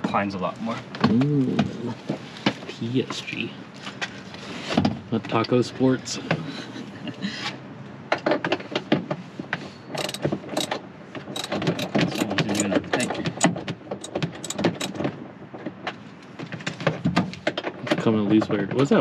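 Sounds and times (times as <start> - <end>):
ratchet wrench clicking: 9.9 - 12.7, 13.4 - 15.0
sharp metal knocks: 9.9 - 15.2.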